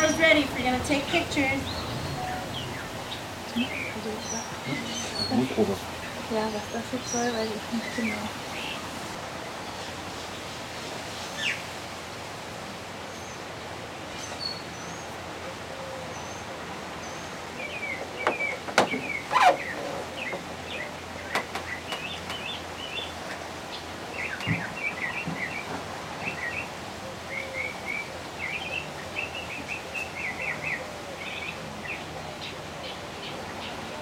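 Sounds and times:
small birds chirping: 0:00.0 - 0:09.2, 0:17.0 - 0:34.0
steady outdoor hiss: 0:00.0 - 0:34.0.

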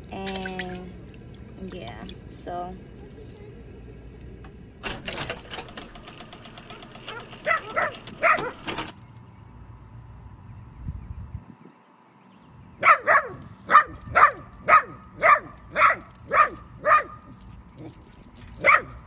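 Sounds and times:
young dog barking: 0:07.1 - 0:08.7, 0:12.8 - 0:17.9, 0:18.6 - 0:19.0.

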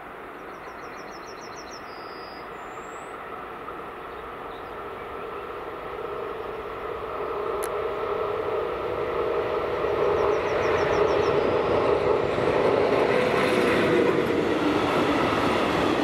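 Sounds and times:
freight train rumble: 0:00.0 - 0:16.0
bird chirping: 0:00.4 - 0:03.3, 0:09.9 - 0:11.8.

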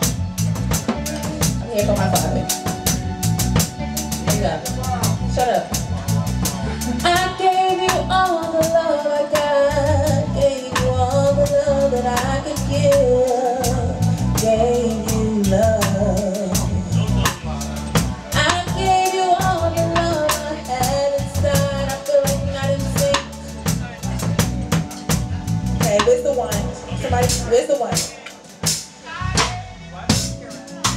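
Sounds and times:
bass line: 0:00.0 - 0:30.9
drum kit beat: 0:00.0 - 0:30.9
person singing: 0:06.5 - 0:17.6, 0:18.4 - 0:23.6.

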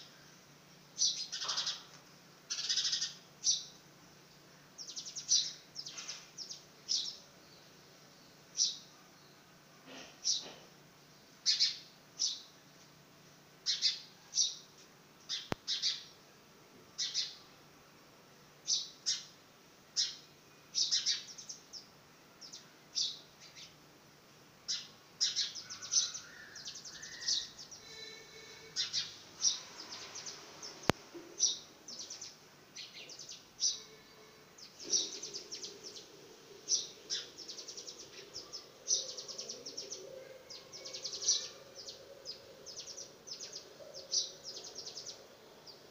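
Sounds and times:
sparrow chirping: 0:01.0 - 0:01.9, 0:02.5 - 0:03.8, 0:04.8 - 0:07.7, 0:11.4 - 0:12.5, 0:13.6 - 0:16.1, 0:17.0 - 0:17.4, 0:18.6 - 0:19.3, 0:20.0 - 0:23.8, 0:24.7 - 0:45.9.

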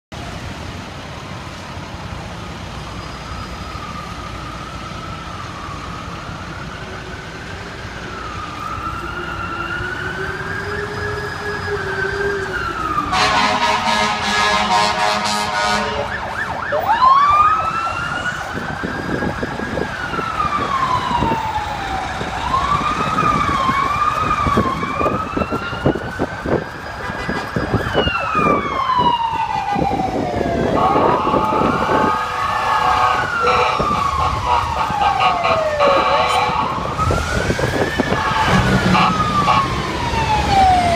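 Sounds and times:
ambulance siren wailing: 0:02.6 - 0:40.9
air horn blast: 0:13.1 - 0:16.3, 0:30.8 - 0:36.7, 0:38.1 - 0:39.7.

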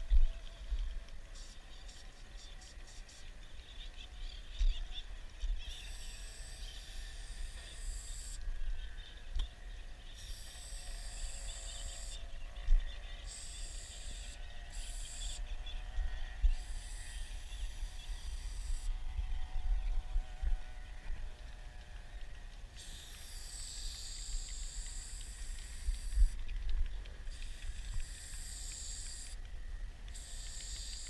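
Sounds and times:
spray paint can hissing: 0:07.2 - 0:08.4, 0:10.2 - 0:12.2, 0:13.3 - 0:15.4, 0:22.8 - 0:26.4, 0:27.3 - 0:29.4, 0:30.1 - 0:31.0.

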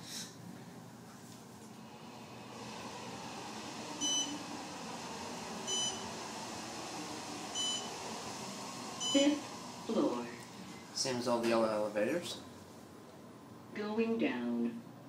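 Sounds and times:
elevator car humming: 0:01.4 - 0:15.0
elevator beeps: 0:04.0 - 0:04.5, 0:05.6 - 0:06.2, 0:07.5 - 0:08.0, 0:09.0 - 0:09.6.

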